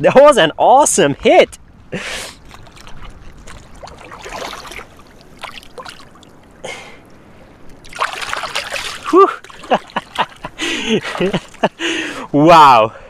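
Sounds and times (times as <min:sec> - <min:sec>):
wind rumbling on microphone: 0:00.0 - 0:12.3
rushes of moving water: 0:00.0 - 0:13.0
fish splashing in water: 0:02.4 - 0:06.4, 0:07.8 - 0:11.6.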